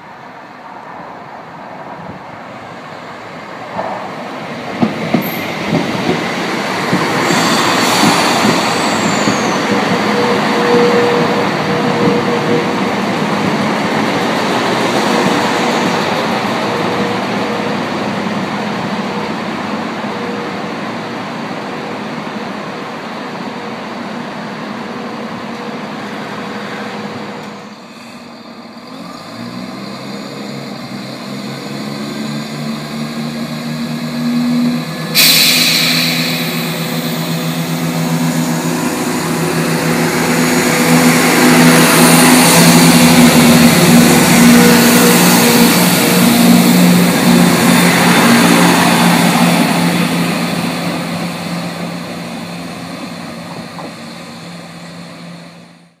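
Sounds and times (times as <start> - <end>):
train diesel engines revving: 0.0 - 56.0
loud hiss: 35.0 - 40.8.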